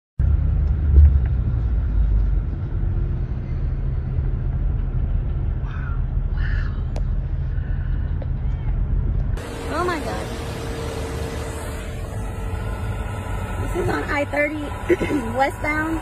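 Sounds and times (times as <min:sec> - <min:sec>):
fire low rumble: 0:00.2 - 0:16.0.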